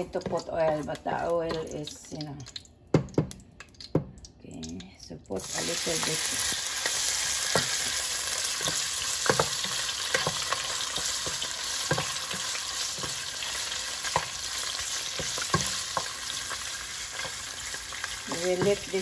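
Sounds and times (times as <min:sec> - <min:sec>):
wooden spoon knocking on pot: 0:02.9 - 0:04.2, 0:08.6 - 0:13.3
pork sizzling in hot oil: 0:05.4 - 0:19.0.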